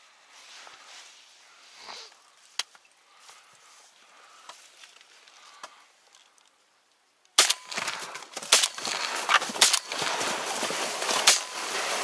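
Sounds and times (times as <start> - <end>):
rustling and crackling at microphone: 0.0 - 12.0
sharp cracks: 7.3 - 12.0.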